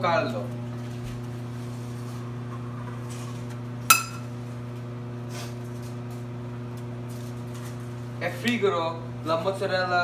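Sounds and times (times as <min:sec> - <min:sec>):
low steady hum: 0:00.0 - 0:04.8.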